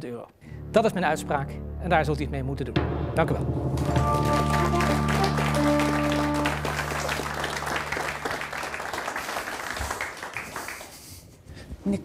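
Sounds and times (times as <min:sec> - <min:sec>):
short music sting: 0:00.6 - 0:08.8
studio audience applauding: 0:03.8 - 0:11.2.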